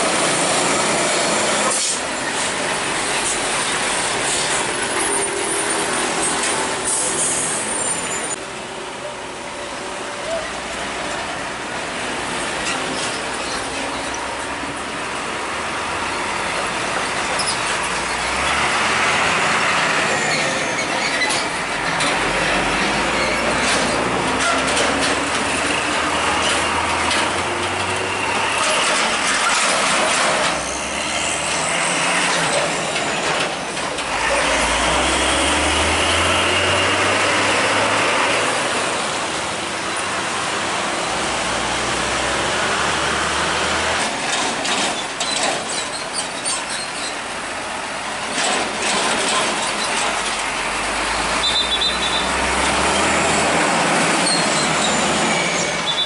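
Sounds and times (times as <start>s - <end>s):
truck engines passing: 0.0s - 56.0s.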